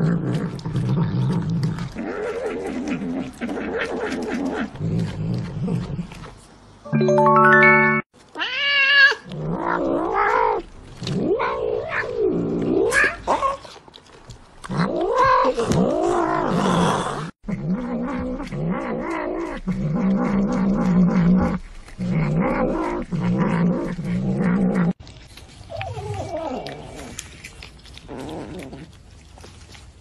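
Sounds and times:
short steady chime: 6.9s - 8.1s.

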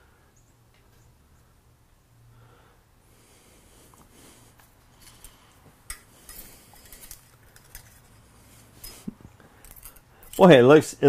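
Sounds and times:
low steady hum: 0.0s - 11.0s
metallic clicks of hand tools: 5.0s - 8.2s, 8.8s - 10.5s.

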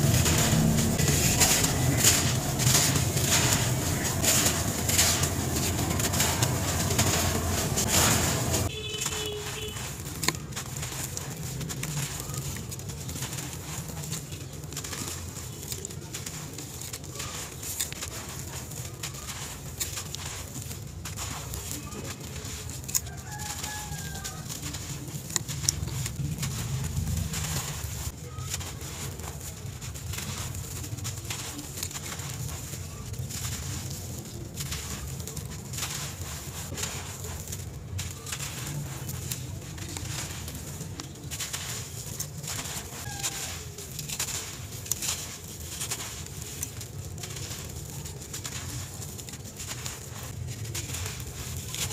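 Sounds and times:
steady low background sound: 0.0s - 8.7s
hands crumbling dry sand: 0.0s - 51.9s
sand grains falling: 0.0s - 51.9s.

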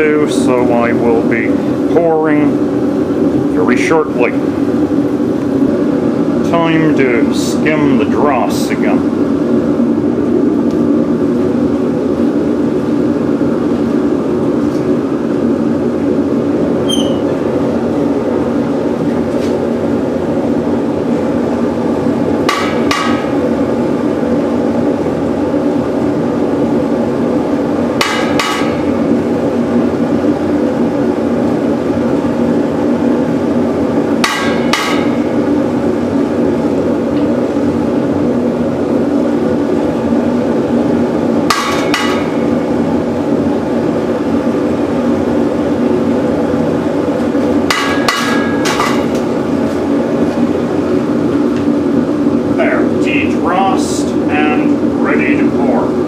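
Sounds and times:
propane burner roaring: 0.0s - 56.0s.

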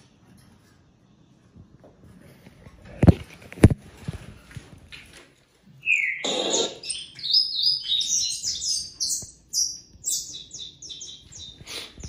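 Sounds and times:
finch singing high chirps: 5.8s - 12.0s.

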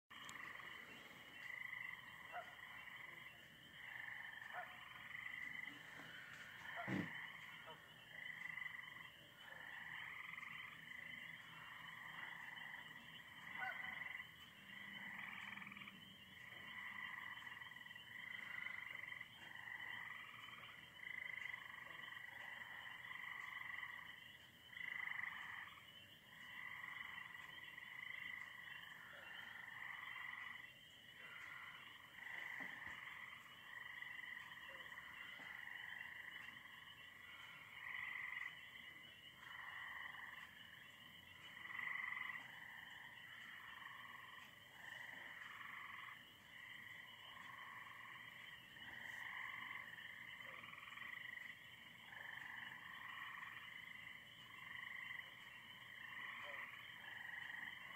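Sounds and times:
frogs calling: 0.1s - 57.9s.

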